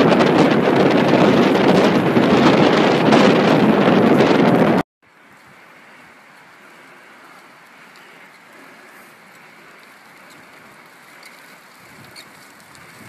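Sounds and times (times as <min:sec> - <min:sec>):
bicycle rolling on gravel: 0:00.0 - 0:13.0
wind hiss on microphone: 0:11.6 - 0:13.0.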